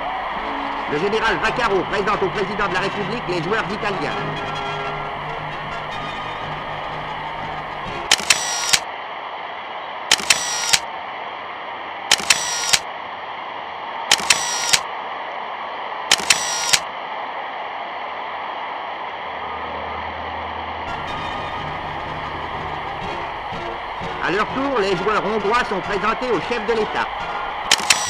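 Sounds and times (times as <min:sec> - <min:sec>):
sharp clicks: 0:08.1 - 0:08.8, 0:10.1 - 0:10.8, 0:12.1 - 0:12.8, 0:14.1 - 0:14.8, 0:16.1 - 0:16.8, 0:27.5 - 0:28.0
low hum: 0:19.3 - 0:24.3.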